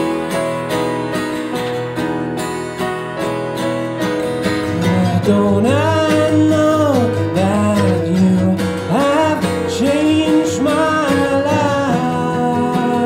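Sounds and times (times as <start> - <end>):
strummed acoustic guitar: 0.0 - 13.0
man singing: 4.8 - 13.0.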